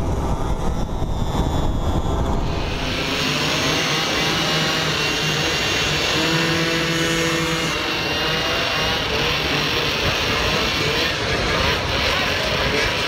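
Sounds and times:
moped engines buzzing: 0:00.0 - 0:13.0
wind rushing over microphone: 0:00.0 - 0:13.0.

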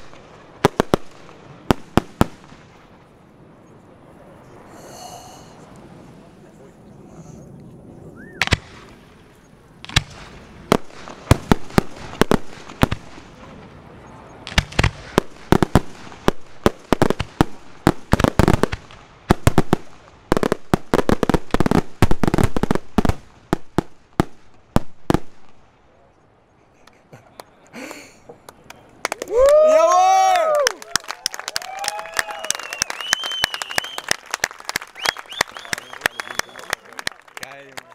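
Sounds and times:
firework shells bursting: 0:08.4 - 0:13.7, 0:14.4 - 0:25.6.

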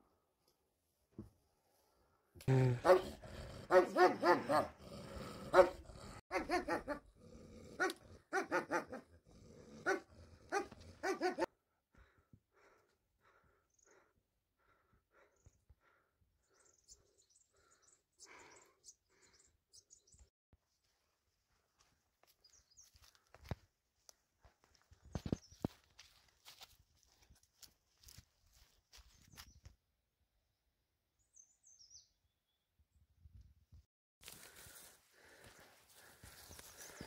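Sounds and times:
dog barking: 0:02.8 - 0:03.1, 0:03.7 - 0:04.8, 0:05.5 - 0:07.1, 0:07.8 - 0:09.1, 0:09.8 - 0:11.5.

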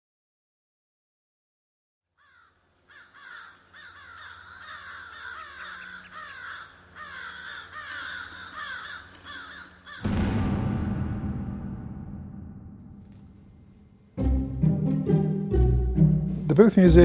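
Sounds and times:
flock of birds calling: 0:02.2 - 0:10.0.

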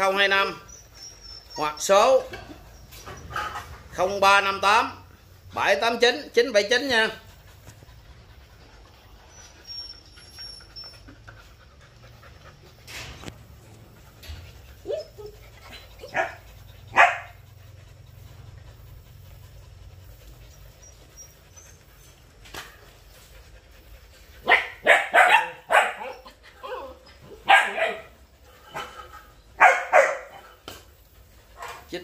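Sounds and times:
puppies barking and yipping: 0:00.0 - 0:32.0.

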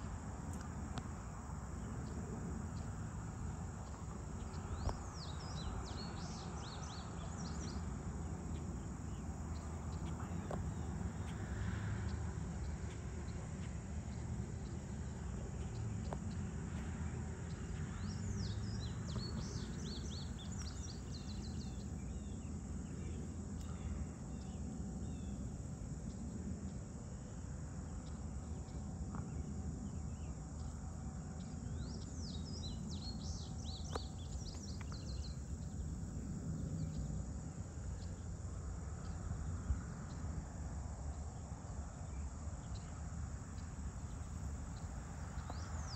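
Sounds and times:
insects chorus: 0:00.0 - 0:45.9.

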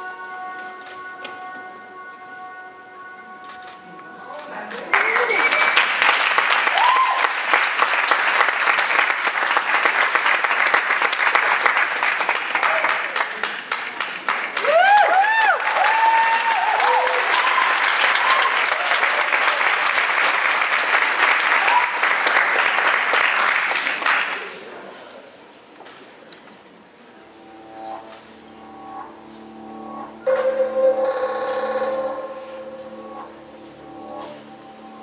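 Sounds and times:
audience applauding: 0:04.7 - 0:24.7.

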